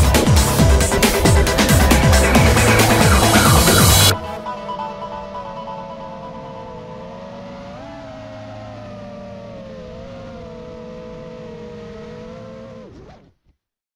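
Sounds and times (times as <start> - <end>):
quadcopter motors whining: 0.6 - 4.4, 6.5 - 13.0.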